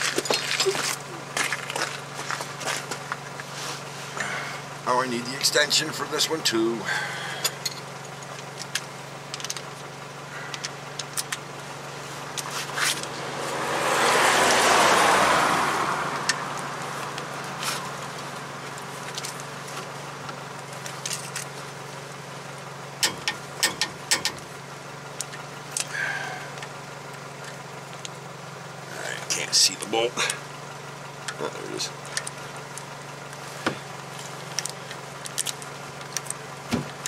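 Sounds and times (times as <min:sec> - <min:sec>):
steady low hum: 0:00.0 - 0:14.0, 0:15.7 - 0:37.0
metal clinks and clicks of tools: 0:07.4 - 0:09.7.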